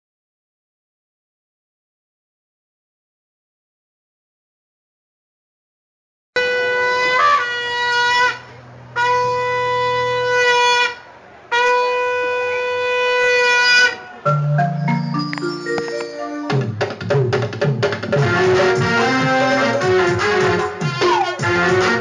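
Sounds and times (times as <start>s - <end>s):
quick run of musical notes: 14.3s - 22.0s
conch shell blasts: 18.2s - 22.0s.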